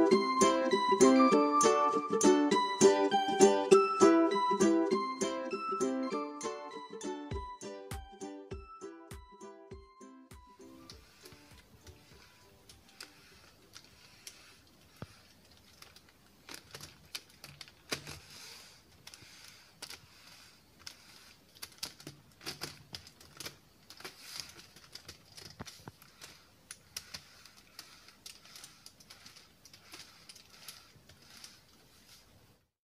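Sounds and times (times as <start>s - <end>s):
plastic puzzle pieces clicking: 10.8s - 32.2s.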